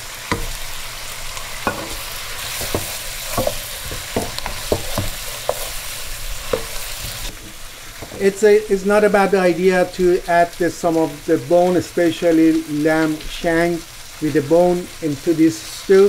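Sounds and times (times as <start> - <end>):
meat and onions sizzling in oil: 0.0 - 16.0
spoon scraping a pot: 1.6 - 8.2.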